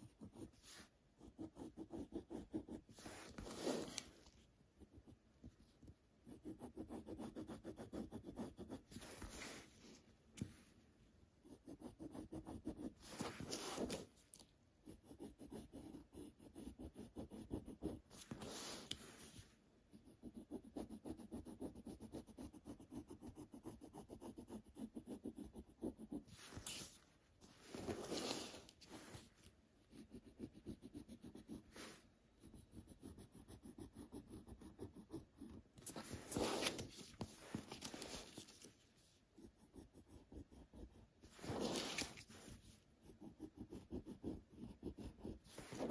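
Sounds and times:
pencil scratching on paper: 0.0s - 4.1s, 5.8s - 9.6s, 11.4s - 14.1s, 14.8s - 27.0s, 27.7s - 45.9s.

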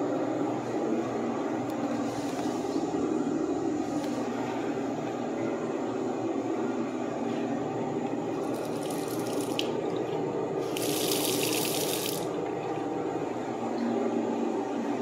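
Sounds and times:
steady low hum: 0.0s - 15.0s
water streaming into sink: 8.4s - 12.4s.

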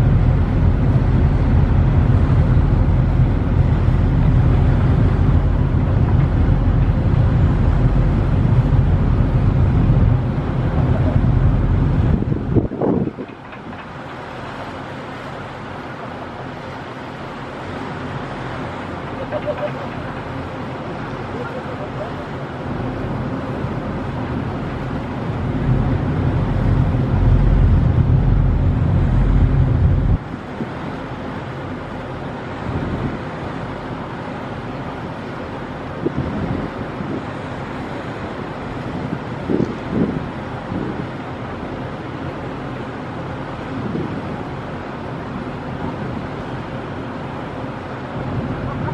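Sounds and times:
heavier low rumble: 0.0s - 13.3s, 25.3s - 30.3s
wind buffeting microphone: 0.0s - 14.1s, 18.5s - 31.0s, 36.0s - 41.4s, 43.6s - 44.6s, 48.0s - 48.9s
ship engine rumble: 0.0s - 48.9s.

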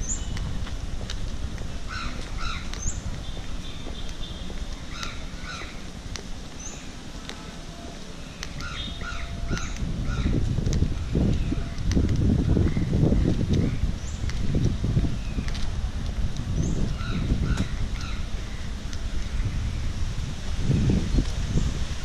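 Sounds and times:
birds calling: 0.0s - 0.6s, 1.7s - 15.7s, 16.5s - 20.0s
low rumbling noise: 0.0s - 22.0s.

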